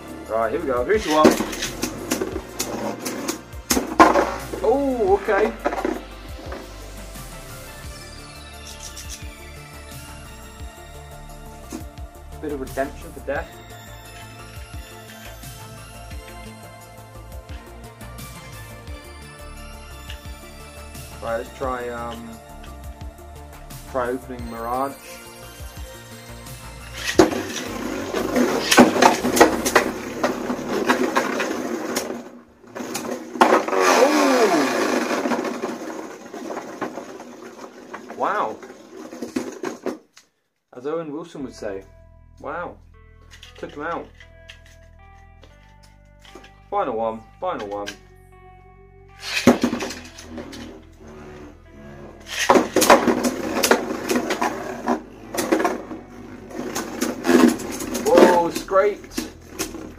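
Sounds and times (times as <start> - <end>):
spinning tops whirring: 24.7 - 39.9, 49.2 - 59.9
top winding down whine: 32.8 - 38.0.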